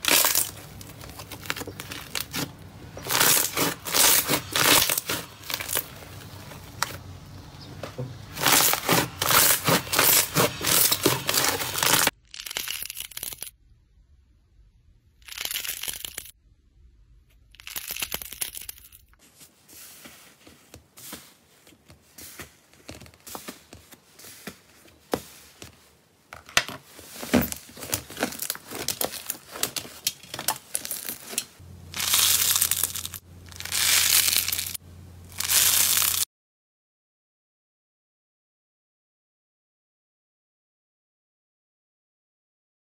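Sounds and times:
slime crackling and tearing: 0.0 - 7.0, 8.4 - 13.5, 27.1 - 36.2.

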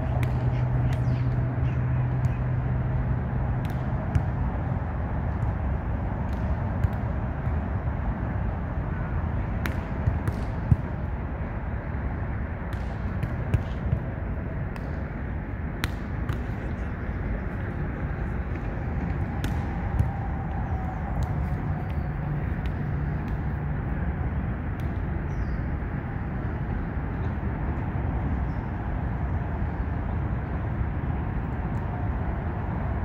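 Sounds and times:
traffic rumble overhead: 0.0 - 33.0
volleyball slaps: 3.5 - 4.6, 6.2 - 7.6, 9.6 - 11.1, 12.6 - 14.1, 14.7 - 15.1, 15.8 - 16.6, 19.0 - 23.6, 24.7 - 25.0.

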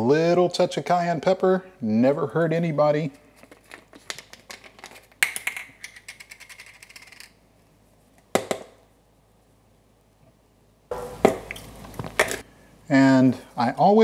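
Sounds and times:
spice shaker rattling: 3.5 - 7.4.

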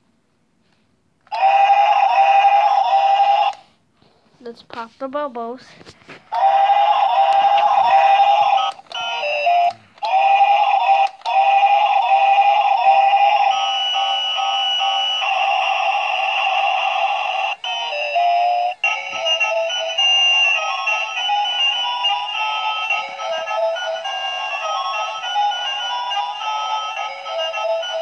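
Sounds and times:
tinny electronic tune: 6.4 - 28.0.

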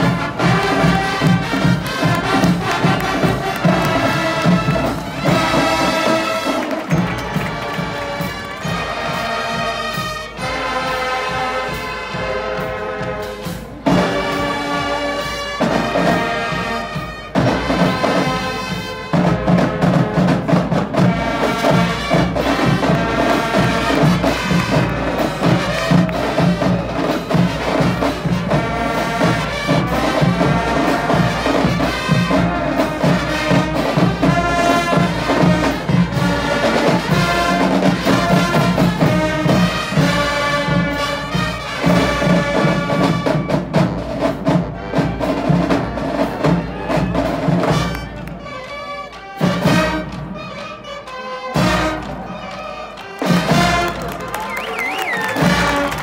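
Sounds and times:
steady drum beat: 0.0 - 48.2, 53.0 - 56.0
marching band playing: 0.0 - 56.0.

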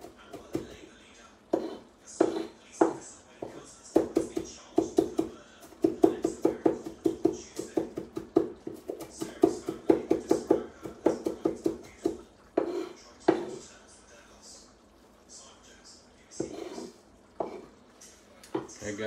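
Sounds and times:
knife chopping on wooden board: 1.5 - 13.6, 16.4 - 17.7.

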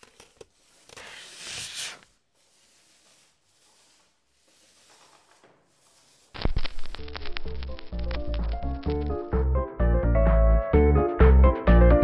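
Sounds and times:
rustling swish of record: 0.5 - 9.4.

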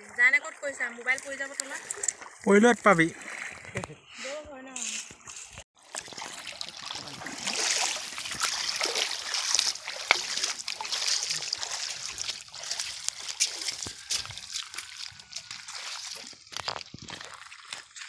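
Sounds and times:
feet splashing through shallow water: 0.0 - 18.0
pebbles clicking underfoot: 9.7 - 18.0.

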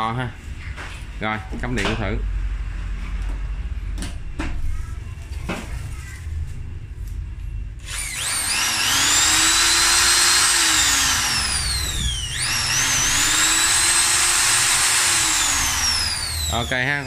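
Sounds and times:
impact drill motor whining: 7.8 - 17.0.

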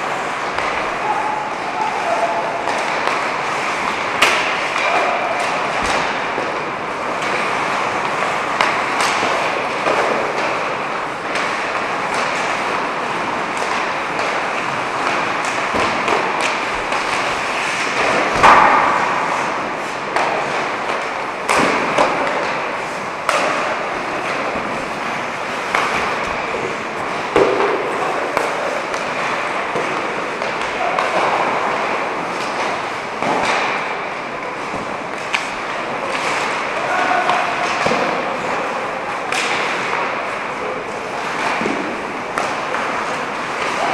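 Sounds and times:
pucks hitting boards: 0.0 - 43.9
sticks striking pucks: 0.0 - 43.9
skates hissing on ice: 7.1 - 21.1.

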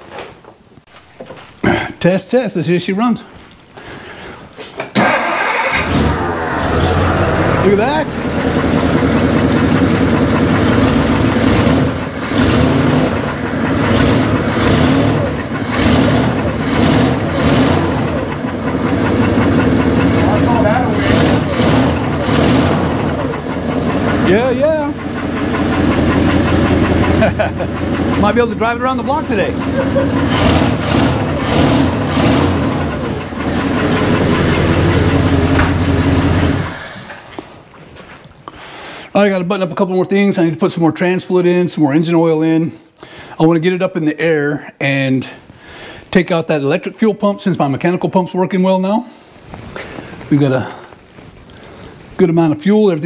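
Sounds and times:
car engine revving: 5.0 - 37.0
intake air rushing: 5.2 - 12.0.

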